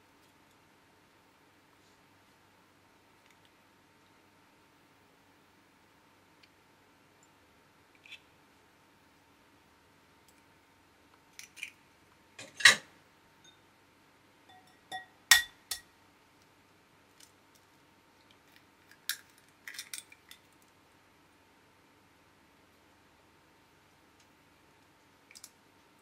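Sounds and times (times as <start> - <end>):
eggshells knocking on glass bowls: 14.5 - 15.9.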